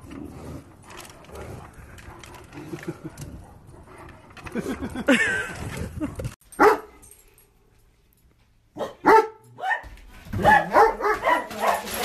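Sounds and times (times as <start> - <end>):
dog barking: 6.6 - 7.0, 8.8 - 12.0.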